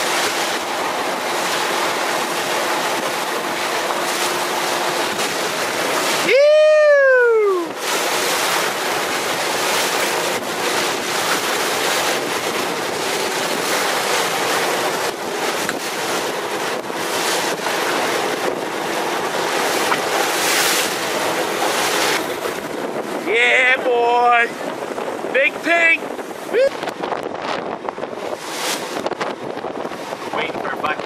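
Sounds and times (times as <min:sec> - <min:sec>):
boat engine running: 0:00.0 - 0:31.0
rushing water: 0:00.0 - 0:31.0
wind buffeting microphone: 0:00.0 - 0:31.0
falling whoop: 0:06.2 - 0:07.7.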